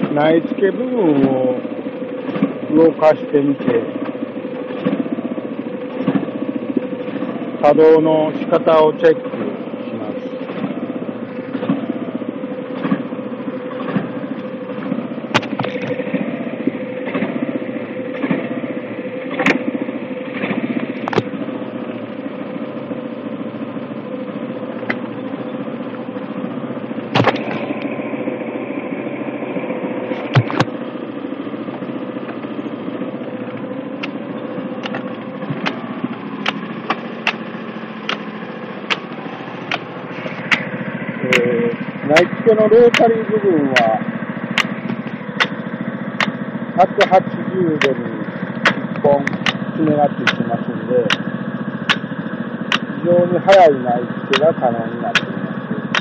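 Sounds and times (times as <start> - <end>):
engine running at low speed: 0.0 - 56.0
mechanism clicking and knocking: 48.6 - 49.6, 50.2 - 50.4.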